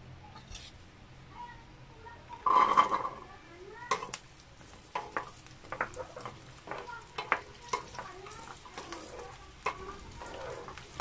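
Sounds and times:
garlic sizzling in oil: 2.2 - 11.0
spatula scraping pan: 2.4 - 11.0.

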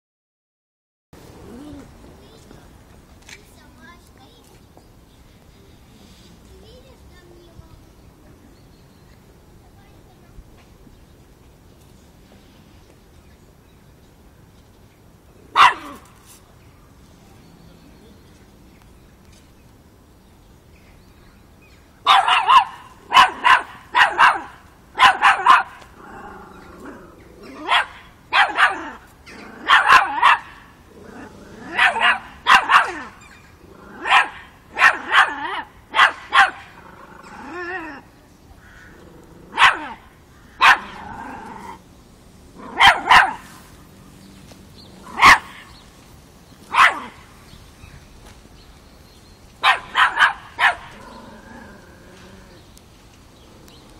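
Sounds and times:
puppy barking sharply: 15.6 - 16.0, 22.1 - 25.8, 27.7 - 28.9, 29.6 - 30.6, 31.8 - 33.0, 34.0 - 36.6, 39.6 - 40.0, 40.6 - 41.0, 42.8 - 43.4, 45.2 - 45.6, 46.7 - 47.2, 49.6 - 50.9.

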